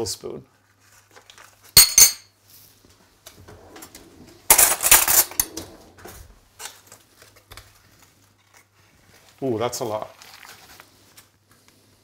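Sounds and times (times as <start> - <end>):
utensils and dishes clattering: 1.8 - 2.3, 4.5 - 5.7.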